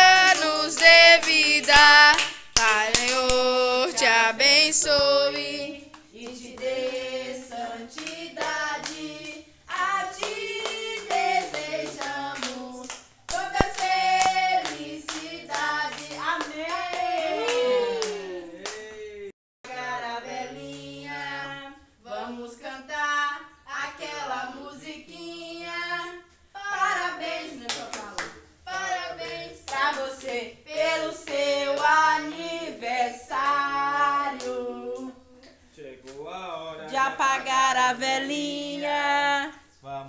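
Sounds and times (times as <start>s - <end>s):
hands clapping: 0.0s - 3.5s, 10.2s - 18.8s
people singing a birthday song: 0.0s - 39.7s.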